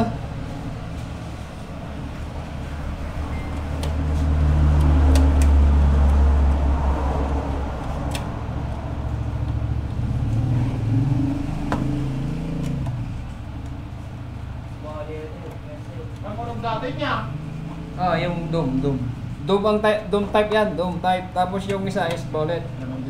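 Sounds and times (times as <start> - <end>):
vehicle engine passing: 0.0 - 23.0.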